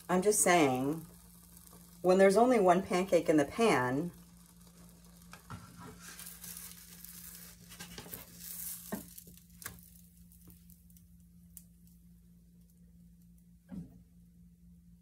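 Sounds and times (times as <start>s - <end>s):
pancake sizzling in frying pan: 0.0s - 11.8s
spatula scraping pan: 5.3s - 9.2s.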